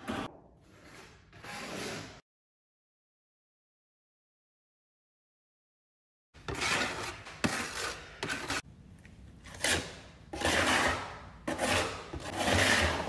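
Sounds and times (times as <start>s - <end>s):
metal scraper scraping floor: 0.0s - 2.2s, 6.4s - 8.7s, 9.4s - 13.0s.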